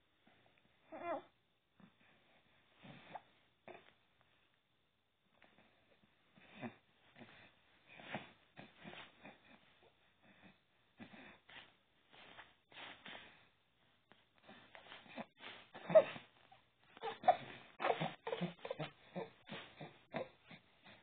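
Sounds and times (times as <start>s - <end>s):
infant grunting and cooing: 0.9s - 1.3s, 15.1s - 16.4s, 17.0s - 21.0s.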